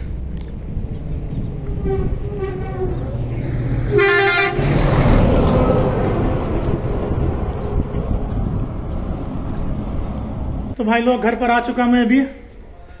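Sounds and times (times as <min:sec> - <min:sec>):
dump truck passing: 0:00.0 - 0:10.8
vehicle horn blast: 0:03.9 - 0:04.7.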